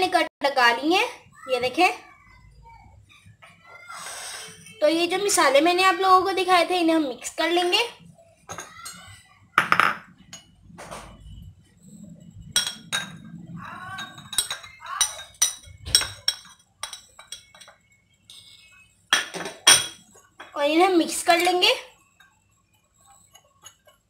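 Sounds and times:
glass plate and spoon clinking on bowl: 0:12.4 - 0:13.4, 0:14.0 - 0:20.5.

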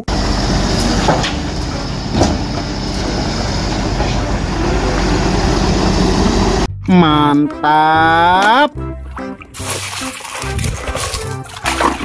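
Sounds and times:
excavator diesel engine rumble: 0:00.0 - 0:06.7
excavator knocks: 0:00.6 - 0:04.3.

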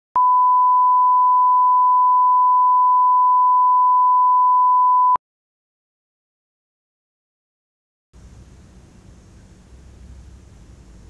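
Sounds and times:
steady test tone beep: 0:00.2 - 0:05.2.

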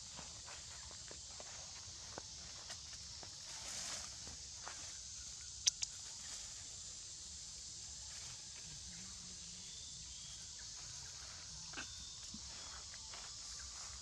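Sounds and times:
steady high hiss: 0:01.7 - 0:11.0
sharp clicks: 0:05.6 - 0:05.9.

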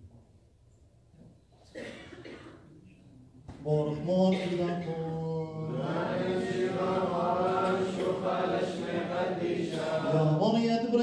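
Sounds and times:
men chanting liturgy: 0:03.6 - 0:11.0.

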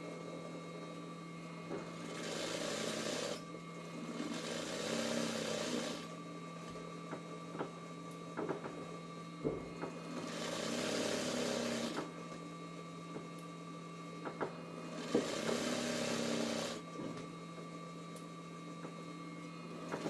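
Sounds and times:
sewing machine stitching: 0:02.0 - 0:03.4, 0:04.2 - 0:06.1, 0:10.0 - 0:12.0, 0:14.9 - 0:16.8.

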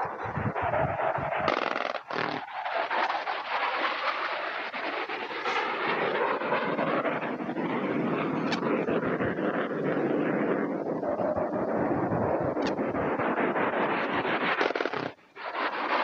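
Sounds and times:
jet noise: 0:00.0 - 0:16.0
cannon firing bursts: 0:05.4 - 0:06.2.

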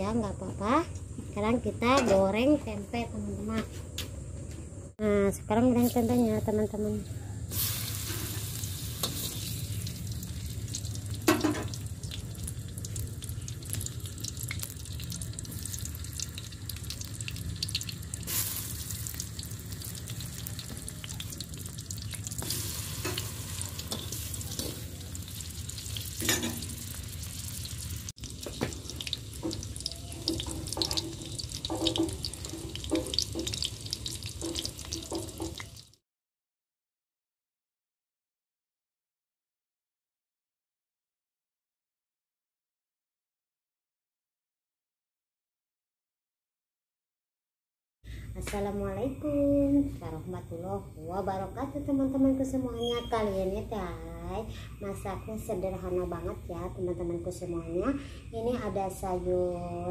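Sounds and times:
food sizzling in oil: 0:07.5 - 0:36.0.

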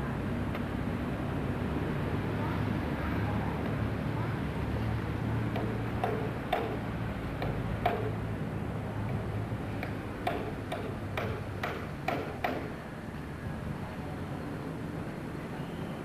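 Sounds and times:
sharp knocks: 0:05.5 - 0:06.8, 0:07.4 - 0:08.2, 0:09.8 - 0:12.8.

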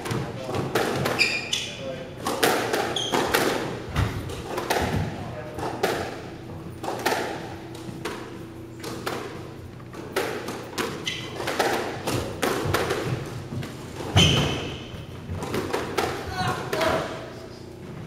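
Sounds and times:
squash ball knocks and thuds: 0:00.0 - 0:01.3, 0:02.2 - 0:06.2, 0:06.8 - 0:17.1
shoe squeaks on wooden floor: 0:01.1 - 0:01.8, 0:02.9 - 0:03.3, 0:10.9 - 0:11.5, 0:14.1 - 0:15.0.

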